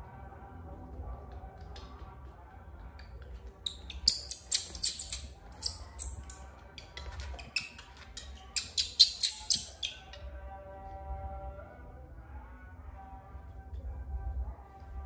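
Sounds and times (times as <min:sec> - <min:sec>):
soft background music: 0:00.0 - 0:15.0
high-pitched squeaks: 0:03.6 - 0:06.4, 0:07.3 - 0:10.2.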